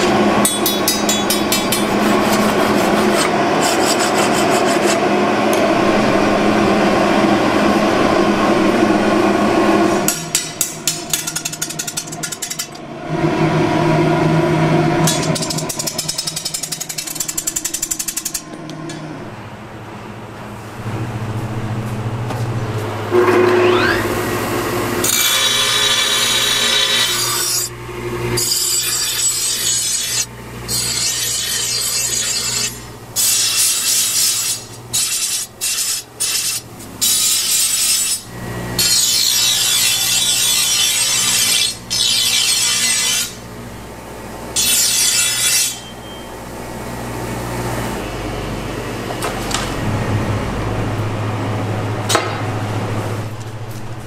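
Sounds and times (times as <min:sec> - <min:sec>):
blade on grinding wheel: 0:00.0 - 0:19.1, 0:23.1 - 0:43.4, 0:44.5 - 0:46.2
grinder motor hum: 0:00.0 - 0:33.1.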